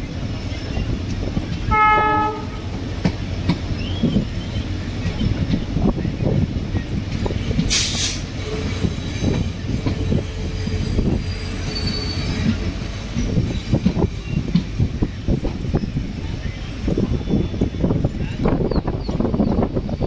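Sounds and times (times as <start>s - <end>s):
train wheels rumbling over rails: 0.0s - 20.0s
sharp burst of hiss: 7.7s - 8.3s
faint wheel squeal: 11.1s - 12.6s.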